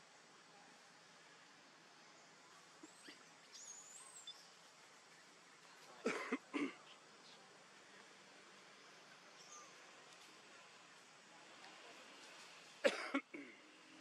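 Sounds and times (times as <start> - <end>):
monkeys harsh cough-like calls: 2.8 - 3.3, 6.0 - 7.0, 12.8 - 13.7.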